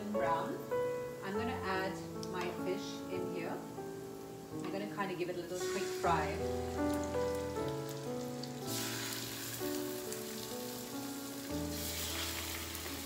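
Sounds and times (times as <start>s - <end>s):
slow background music: 0.0s - 13.0s
fish sizzling in a frying pan: 5.6s - 13.0s.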